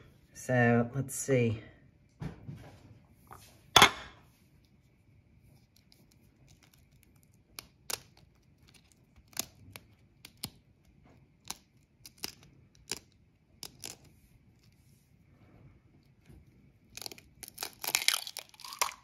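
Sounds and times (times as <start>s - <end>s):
egg shell cracking: 5.6s - 14.8s, 16.8s - 19.0s.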